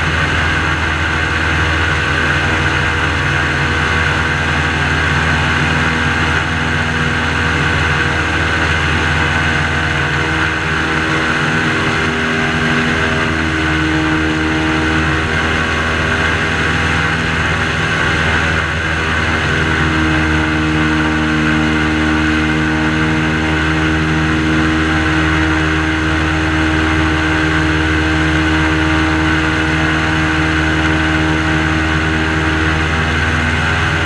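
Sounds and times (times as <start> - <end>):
airboat engine and propeller drone: 0.0 - 34.0.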